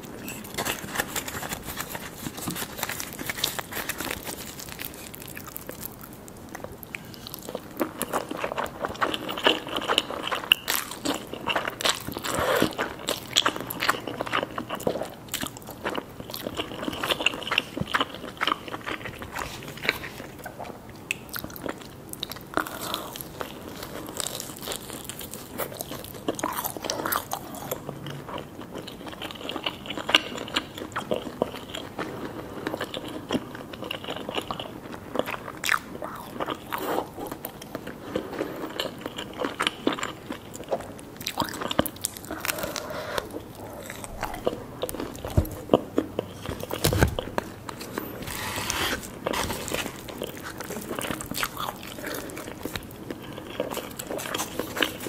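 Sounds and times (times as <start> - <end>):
crunching fried food: 0.0 - 55.0
person chewing noodles: 0.0 - 55.0.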